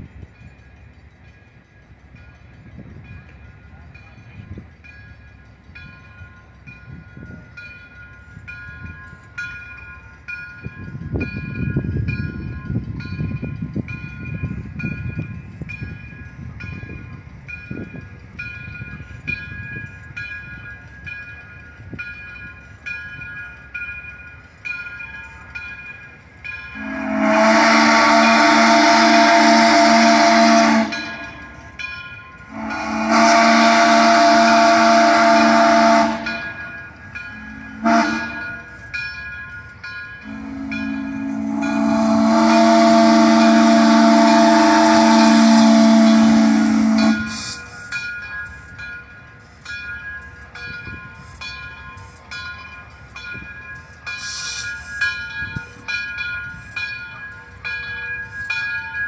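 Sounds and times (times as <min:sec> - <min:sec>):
locomotive bell ringing: 0:00.0 - 0:59.0
steam hiss: 0:23.6 - 0:53.2, 0:53.8 - 0:57.6
steam locomotive whistle blasts: 0:26.7 - 0:31.6, 0:32.5 - 0:36.7, 0:37.3 - 0:38.9, 0:40.2 - 0:48.1, 0:54.2 - 0:55.0.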